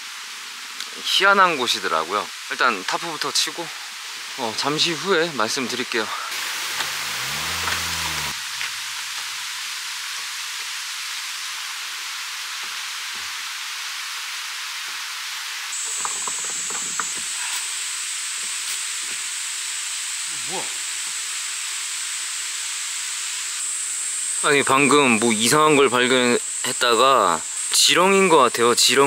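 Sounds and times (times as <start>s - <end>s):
damp forest hiss: 0.0s - 29.0s
high-pitched insect drone: 6.3s - 9.5s.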